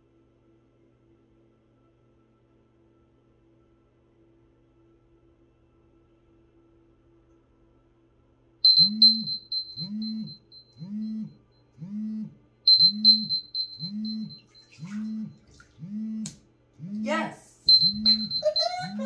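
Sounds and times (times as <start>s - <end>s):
timer alarm high beeps: 8.7s - 11.3s, 12.7s - 15.4s, 17.7s - 19.0s
low pulsing buzz: 8.7s - 19.0s.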